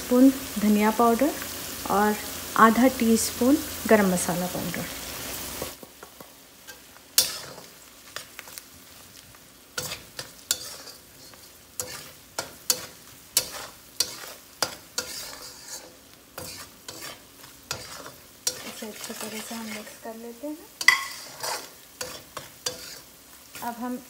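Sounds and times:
onions sizzling in oil: 0:00.0 - 0:24.0
metal spatula scraping a wok: 0:06.6 - 0:08.6, 0:09.8 - 0:20.2, 0:20.8 - 0:23.9.

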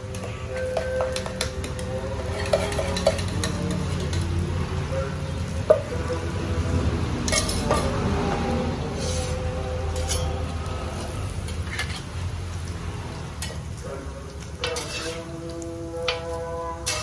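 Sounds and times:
background music with held notes: 0:00.0 - 0:10.8, 0:14.5 - 0:17.0
food sizzling on a griddle: 0:00.0 - 0:17.0
metal spatulas scraping pan: 0:00.5 - 0:04.2, 0:07.3 - 0:07.9, 0:09.0 - 0:10.4, 0:11.4 - 0:12.1, 0:14.6 - 0:17.0.

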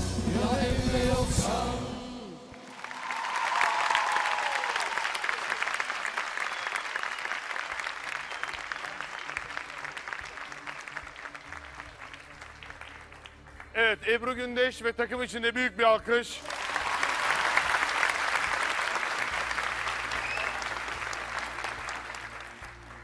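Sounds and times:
audience applauding: 0:02.6 - 0:13.7, 0:16.4 - 0:23.0.

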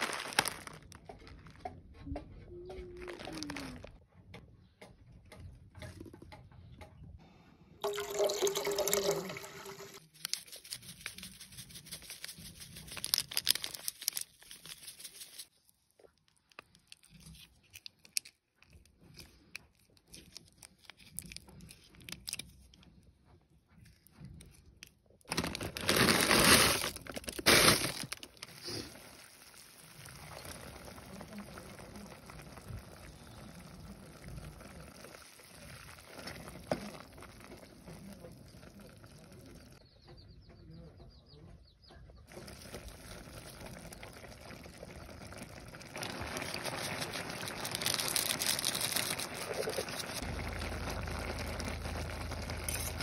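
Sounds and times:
soup boiling in a pot: 0:28.4 - 0:39.8, 0:42.3 - 0:53.0.

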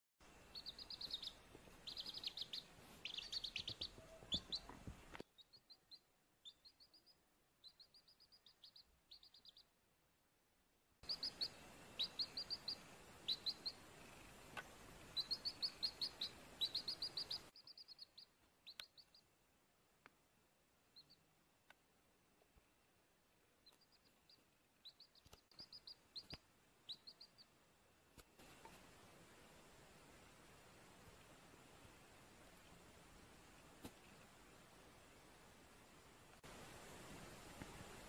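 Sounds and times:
faint hiss: 0:00.2 - 0:38.0
baby chick peeping: 0:00.4 - 0:09.8, 0:11.0 - 0:19.3, 0:20.9 - 0:21.3, 0:23.6 - 0:27.6.

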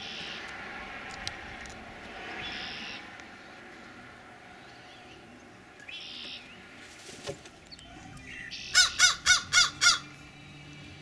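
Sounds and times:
crow cawing: 0:08.6 - 0:10.1.

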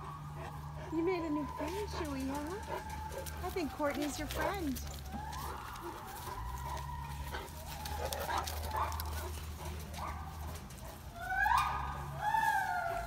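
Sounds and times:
high-pitched gibbon calls: 0:11.2 - 0:13.0.

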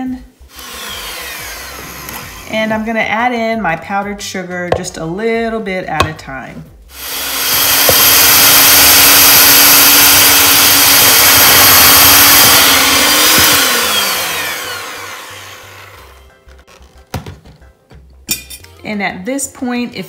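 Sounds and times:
motor winding down whine: 0:00.5 - 0:02.5, 0:07.0 - 0:16.2
electric hand mixer whirring: 0:00.5 - 0:02.7, 0:06.9 - 0:16.2.

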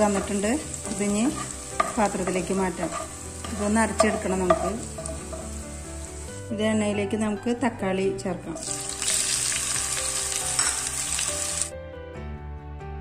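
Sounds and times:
wooden spatula scraping pan: 0:00.0 - 0:05.6
onions sizzling in oil: 0:00.0 - 0:06.6, 0:08.6 - 0:11.7
background music: 0:00.0 - 0:13.0.

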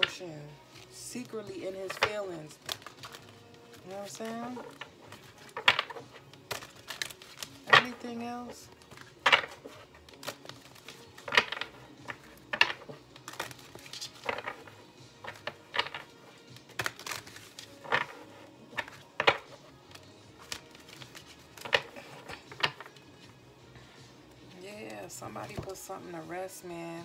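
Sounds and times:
faint background music: 0:00.0 - 0:27.0
cards snapping and tapping: 0:01.8 - 0:08.2, 0:08.8 - 0:23.1.

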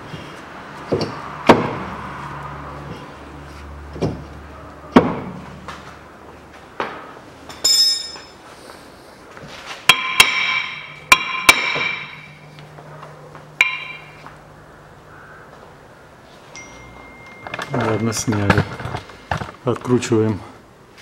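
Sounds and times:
metal disc ringing: 0:07.5 - 0:08.4, 0:09.9 - 0:12.5, 0:13.6 - 0:14.3, 0:16.5 - 0:19.1
hammer striking metal disc: 0:09.9 - 0:12.4, 0:13.6 - 0:14.2.

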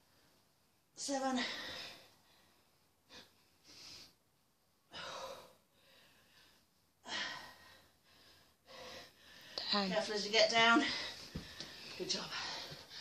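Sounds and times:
woman breathing hard: 0:04.9 - 0:09.6.

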